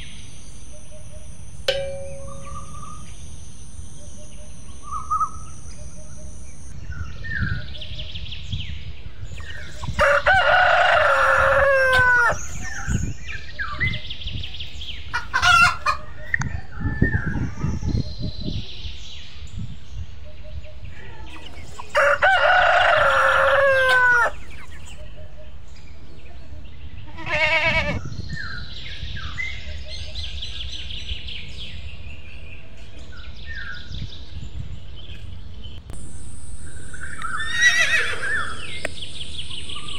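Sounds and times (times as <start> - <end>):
faint bird chirping: 0.0 - 10.0, 24.3 - 39.9
rooster crowing: 10.0 - 12.5, 21.9 - 24.4.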